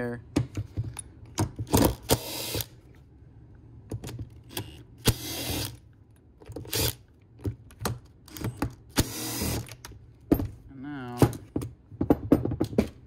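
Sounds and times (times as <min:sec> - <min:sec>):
impact driver bursts: 0:01.7 - 0:02.8, 0:04.6 - 0:05.8, 0:08.9 - 0:09.8.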